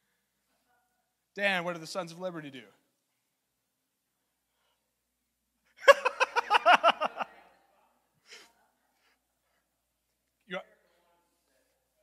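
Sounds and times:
man laughing: 5.8s - 7.3s.

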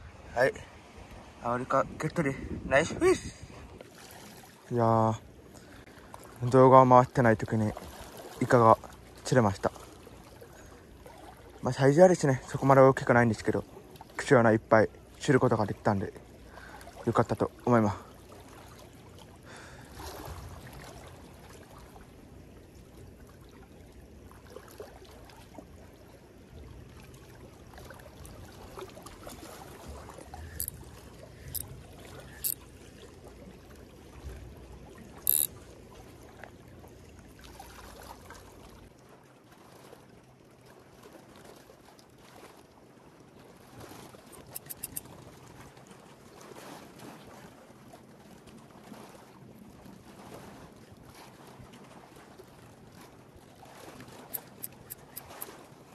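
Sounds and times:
sea water lapping on concrete: 3.4s - 55.9s
quick ticks: 35.3s - 35.5s, 44.4s - 45.0s, 54.3s - 55.5s
sharp clicks: 35.3s - 35.5s, 44.4s - 45.0s, 54.4s - 55.4s.

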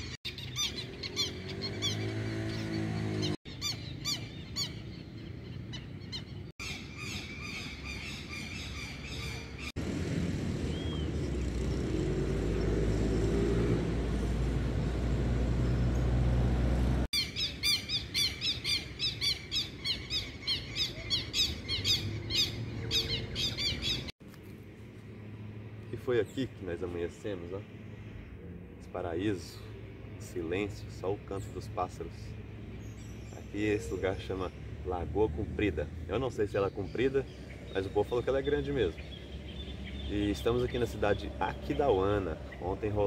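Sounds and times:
wild birds squawking chirps: 0.0s - 9.9s, 17.1s - 24.2s, 25.8s - 43.0s.

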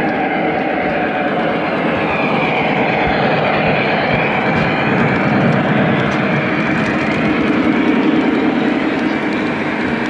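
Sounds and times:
model train rumbling: 2.7s - 10.0s.

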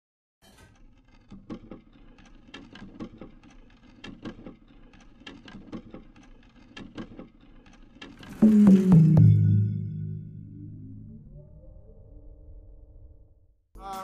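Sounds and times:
mechanical ticking and clanking: 0.4s - 10.4s
low hum: 8.4s - 13.6s.

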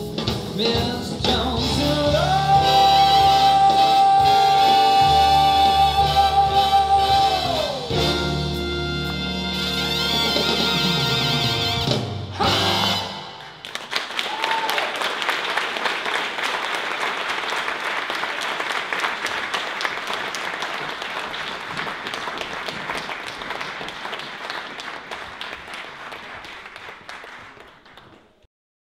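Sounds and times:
audience applauding: 12.4s - 28.5s.

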